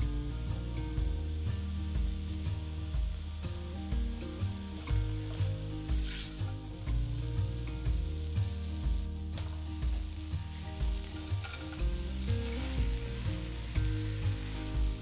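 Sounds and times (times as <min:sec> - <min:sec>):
background music with low beat: 0:00.0 - 0:15.0
vegetables sizzling in a pot: 0:00.0 - 0:15.0.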